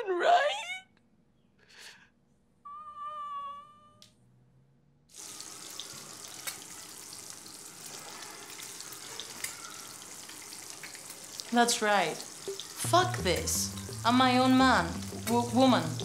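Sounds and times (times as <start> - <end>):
eggs and bacon sizzling in a pan: 5.1 - 16.0.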